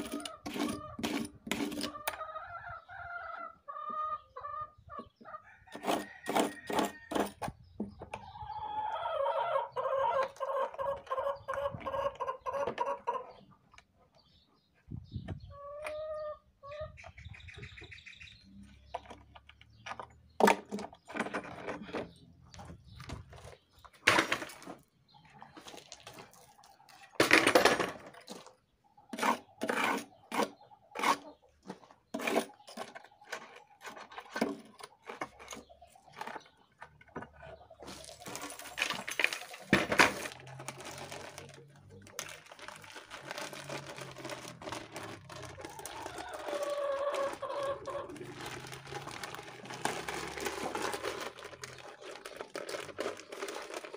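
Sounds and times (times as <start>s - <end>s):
chicken clucking: 0.0s - 1.1s, 1.9s - 7.1s, 7.9s - 18.2s, 25.1s - 27.2s, 28.5s - 38.4s, 45.5s - 48.4s
knocks and scrapes on cement: 0.0s - 2.1s, 5.7s - 8.1s, 18.7s - 42.5s.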